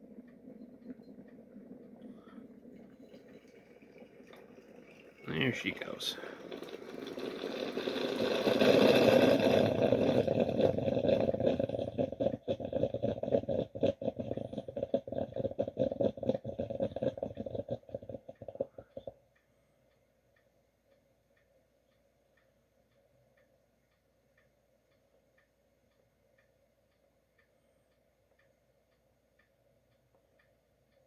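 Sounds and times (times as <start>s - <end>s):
kettle boiling and spluttering: 0.0s - 19.2s.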